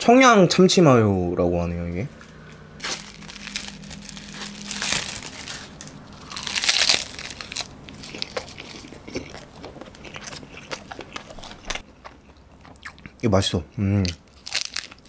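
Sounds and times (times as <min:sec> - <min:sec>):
plastic wrapper crinkling: 0:02.8 - 0:09.1, 0:14.2 - 0:15.0
crunching bites and chewing: 0:02.8 - 0:13.2, 0:14.0 - 0:15.0.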